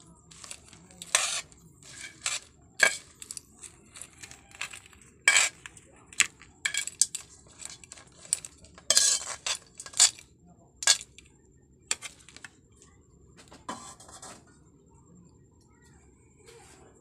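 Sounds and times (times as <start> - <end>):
crawfish shells clattering: 0.0 - 11.2, 11.9 - 12.6
metal utensil scraping a pan: 0.0 - 11.2, 11.9 - 12.5, 13.7 - 14.4.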